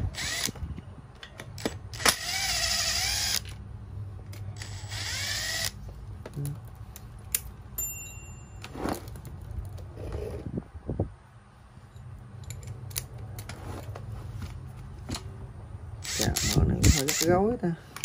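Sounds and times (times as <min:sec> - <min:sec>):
power driver whirring: 0:00.0 - 0:00.8, 0:01.4 - 0:03.6, 0:04.4 - 0:05.8, 0:16.0 - 0:17.4
clicks and knocks of parts handled: 0:00.4 - 0:02.2, 0:04.2 - 0:04.6, 0:05.8 - 0:07.6, 0:11.9 - 0:15.4.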